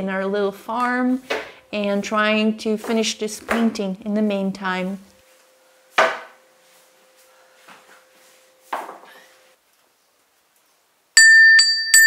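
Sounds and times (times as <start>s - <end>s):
cast-iron bell ringing: 11.2s - 12.0s.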